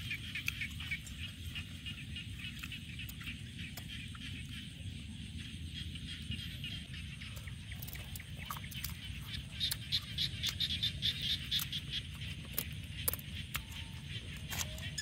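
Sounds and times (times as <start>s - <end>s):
chorus of calling animals: 0.0s - 15.0s
chewing clicks: 0.4s - 1.2s, 7.7s - 15.0s.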